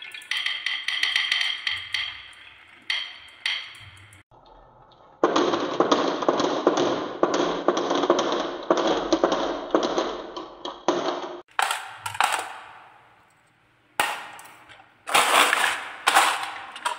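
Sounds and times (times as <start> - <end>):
marbles clattering down wooden track: 5.2 - 12.8, 15.1 - 16.9.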